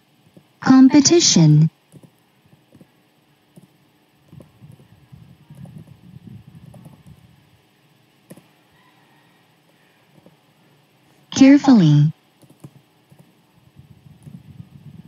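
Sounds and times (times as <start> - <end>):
keyboard typing: 1.9 - 2.9, 12.4 - 13.4.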